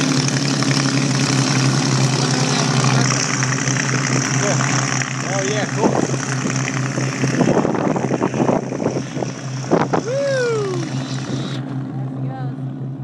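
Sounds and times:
propeller engine drone: 0.0 - 13.0
tone gliding down: 0.0 - 13.0
wind on microphone: 5.7 - 11.7.

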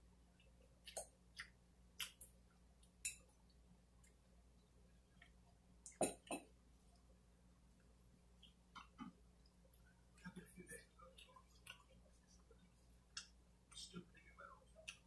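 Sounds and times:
chewing: 8.4 - 13.9.

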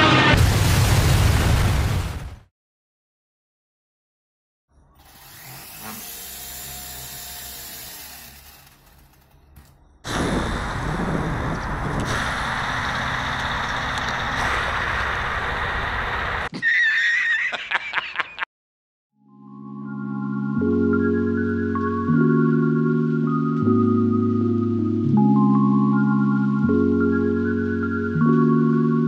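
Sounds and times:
wind on microphone: 10.1 - 13.1
man laughing heartily: 16.5 - 18.5.

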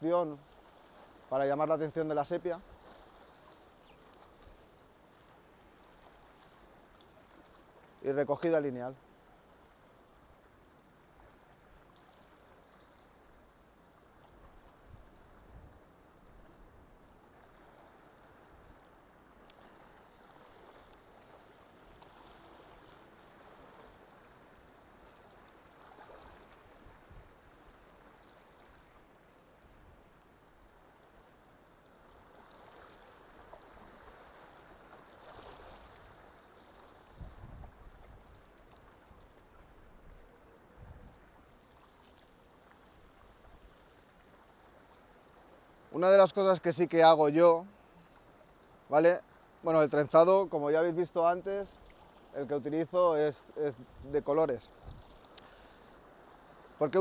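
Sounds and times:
faint seaside ambience: 0.0 - 57.0
water lapping at rocks: 0.3 - 46.5, 51.5 - 52.7, 53.8 - 57.0
faint clicks: 19.4 - 19.7, 55.1 - 55.6.

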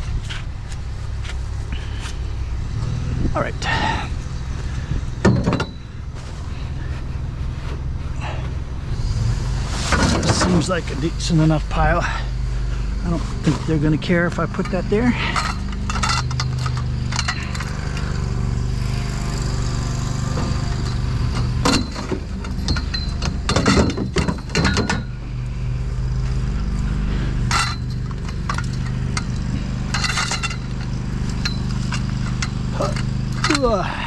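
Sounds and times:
low engine hum: 0.0 - 34.0
steel tubes clanking together: 5.2 - 6.0, 13.4 - 18.4, 20.4 - 25.2, 27.4 - 34.0.

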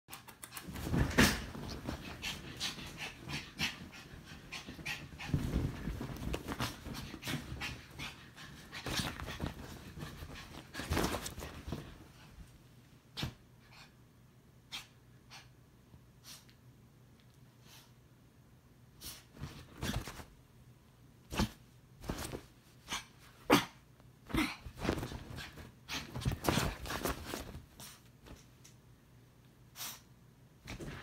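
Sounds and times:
bedding rustling and thumping: 0.6 - 12.4, 19.4 - 20.3, 21.3 - 22.8, 24.2 - 28.6, 30.6 - 31.0.

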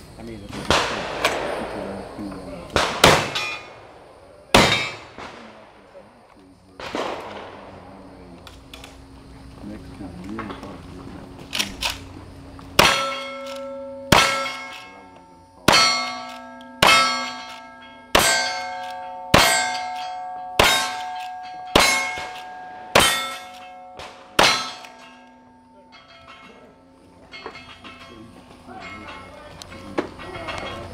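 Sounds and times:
rifle shots: 0.5 - 6.0, 6.8 - 8.0, 12.8 - 15.0, 15.7 - 25.3
steel plate target clanging: 2.8 - 5.4, 12.8 - 30.9.

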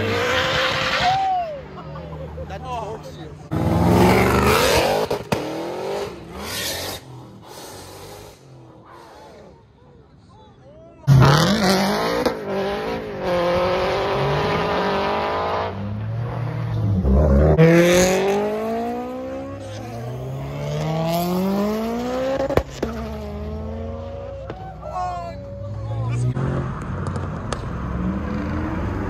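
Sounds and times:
car engines revving while accelerating: 0.0 - 1.1, 3.5 - 9.6, 11.1 - 24.6, 25.6 - 29.0.

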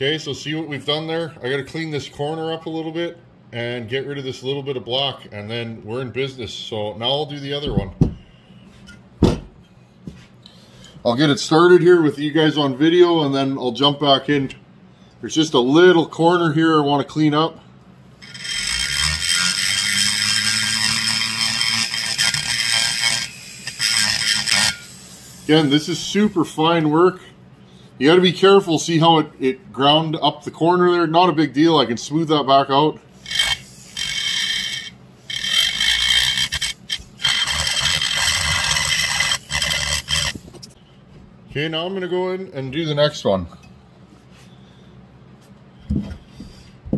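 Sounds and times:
rotary tool grinding whine: 18.2 - 26.8, 33.1 - 40.8.

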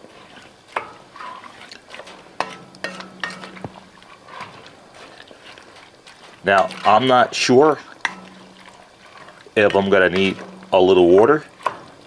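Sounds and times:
wooden spoon stirring thick mix: 0.0 - 12.0
spoon knocking against pot: 2.4 - 3.8, 8.1 - 8.6.

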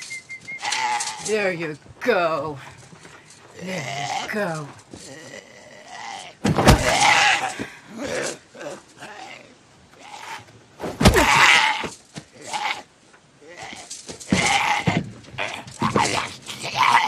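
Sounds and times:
zombie growling and snarling: 13.4 - 17.0.

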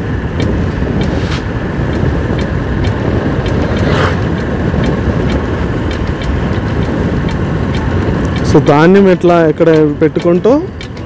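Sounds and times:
motorcycle engine running: 0.0 - 11.0
wind noise: 0.0 - 11.0
tyre noise: 0.1 - 8.8.

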